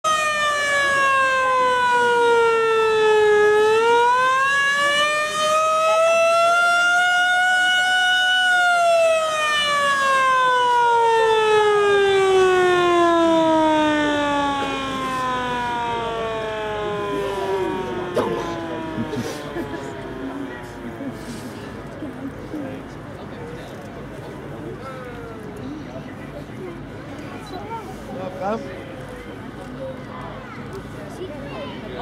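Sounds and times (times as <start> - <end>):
warning siren wailing: 0.0 - 21.2.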